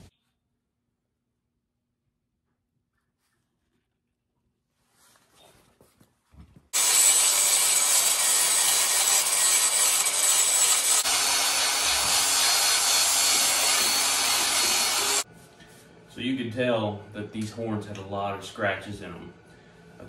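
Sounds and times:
angle grinder grinding horn: 6.8 - 15.2.

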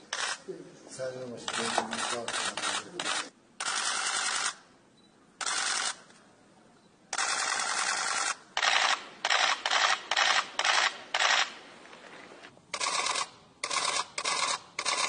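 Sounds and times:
camera shutter clicks in bursts: 0.1 - 0.4, 1.5 - 4.6, 5.4 - 6.1, 7.1 - 11.6, 12.7 - 15.0.

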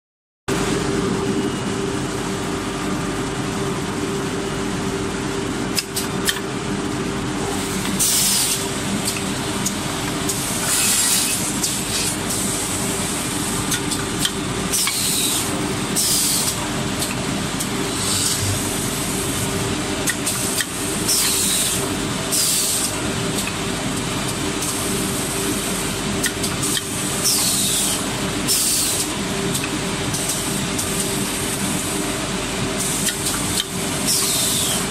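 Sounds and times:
pneumatic cylinder clicks: 33.0 - 34.8.

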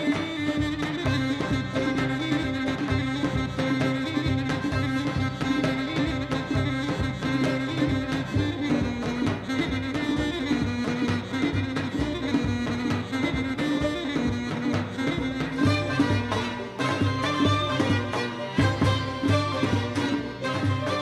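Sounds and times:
double-reed pipe melody: 0.0 - 21.0
plucked lute: 0.0 - 21.0.

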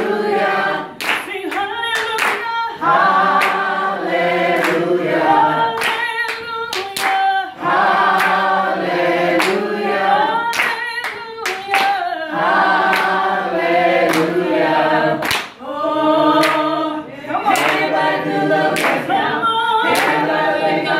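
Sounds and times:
women singing a cappella: 0.0 - 20.9
hand claps: 1.0 - 2.6, 3.3 - 3.7, 4.5 - 4.9, 5.6 - 7.4, 8.0 - 8.5, 9.4 - 9.7, 10.4 - 12.1, 12.8 - 13.2, 14.0 - 14.4, 15.2 - 15.6, 16.4 - 16.7, 17.5 - 17.9, 18.7 - 19.2, 19.8 - 20.3.

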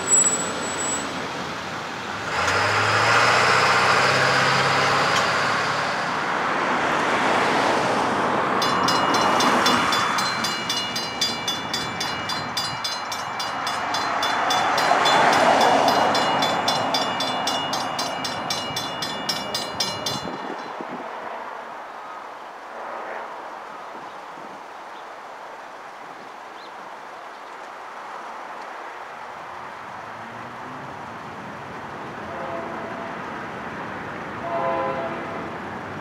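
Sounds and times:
vehicle engine hum: 0.0 - 7.1
road traffic: 0.0 - 36.0
railroad crossing bell ringing: 8.6 - 21.0.

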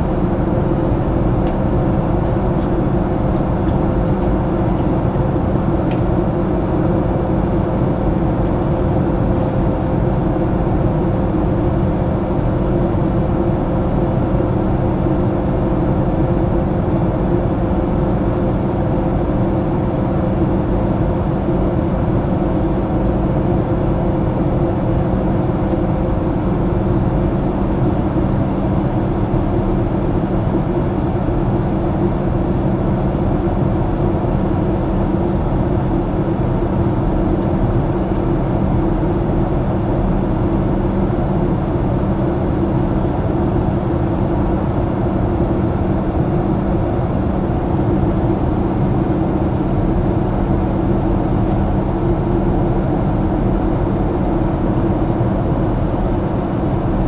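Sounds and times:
low engine drone: 0.0 - 57.0
rush of air in aircraft cabin: 0.0 - 57.0
steady hum tones: 0.0 - 57.0.

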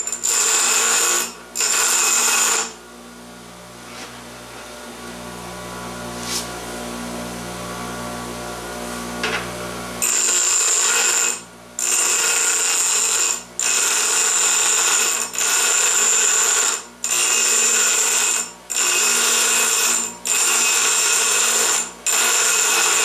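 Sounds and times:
bench grinder grinding metal pipe: 0.0 - 2.8, 10.0 - 23.0
grinder motor running: 0.0 - 2.8, 9.2 - 23.0.

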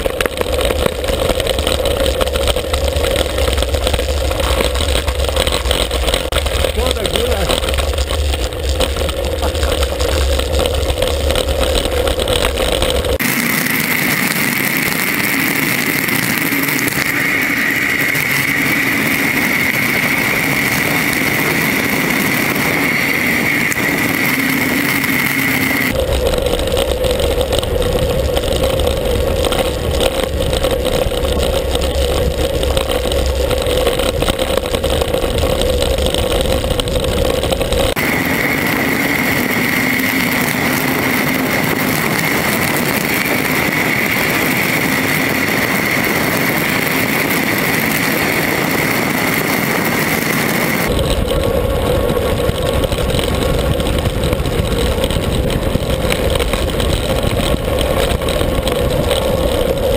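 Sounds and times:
bicycle tyre noise: 0.0 - 59.9
wind rumble on microphone: 0.0 - 59.9
wind rush: 0.0 - 59.9.

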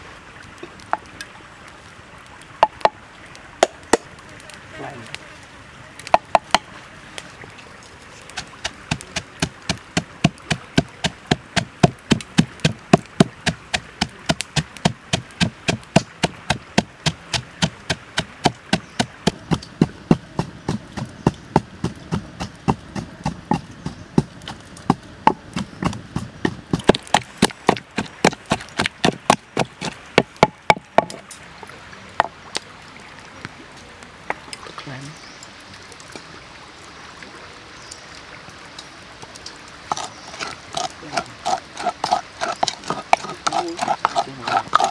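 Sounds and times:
pestle pounding in wooden mortar: 8.4 - 31.2, 39.9 - 44.9.

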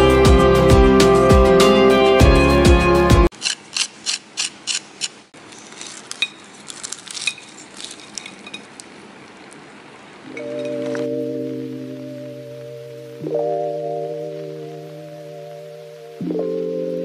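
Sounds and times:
soft music: 0.0 - 3.3, 10.2 - 17.0
sharp clicks: 3.3 - 5.3
knife crunching through fried crust: 3.3 - 9.0.

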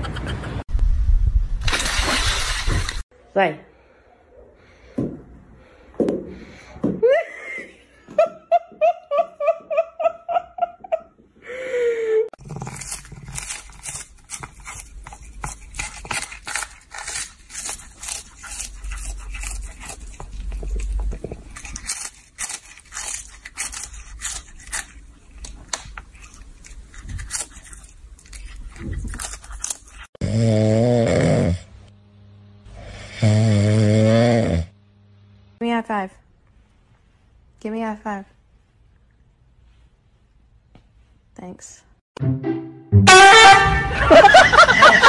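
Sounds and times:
cat crunching a treat: 12.4 - 30.1.

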